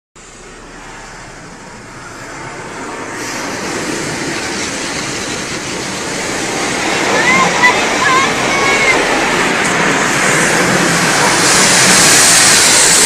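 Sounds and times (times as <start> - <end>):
car wash water spray: 0.2 - 13.0
sharp hiss: 3.0 - 6.5, 9.6 - 13.0.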